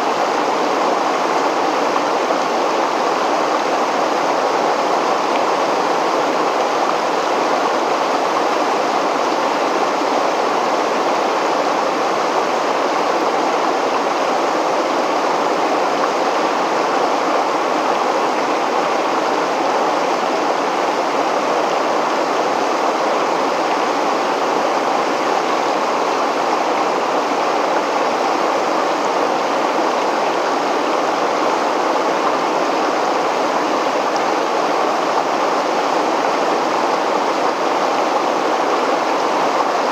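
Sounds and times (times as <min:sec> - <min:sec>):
river water pouring over a weir: 0:00.0 - 0:39.9.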